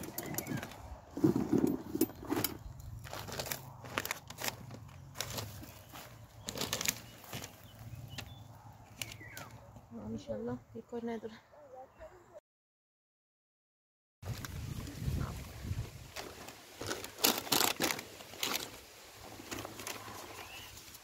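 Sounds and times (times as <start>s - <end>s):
paper rustling and crinkling: 3.0s - 9.6s, 14.3s - 21.0s.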